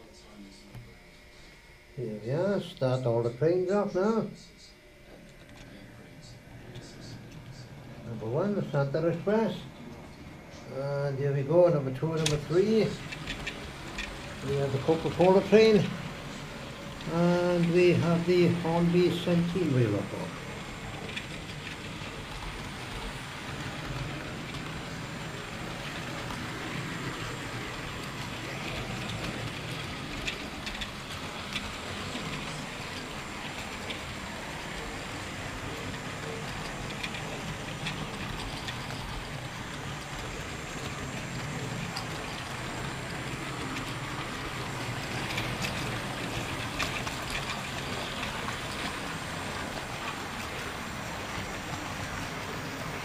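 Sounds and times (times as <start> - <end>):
model train wheels rattling: 11.3 - 53.0.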